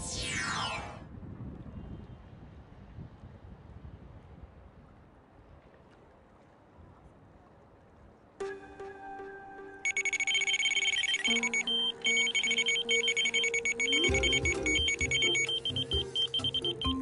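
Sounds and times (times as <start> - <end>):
background music: 8.4 - 17.0
bite alarm high beeps: 9.9 - 17.0.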